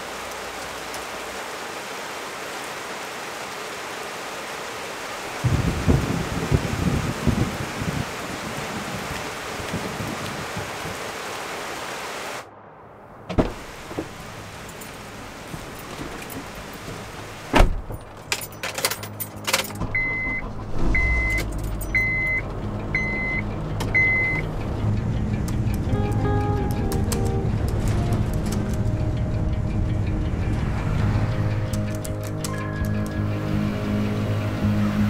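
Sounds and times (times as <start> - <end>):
rain falling: 0.0 - 35.0
car door shutting: 13.3 - 14.2, 15.6 - 18.1
keys jangling: 17.9 - 19.9, 21.4 - 22.0
car engine running: 19.8 - 35.0
dashboard warning chime beeping: 19.9 - 24.5.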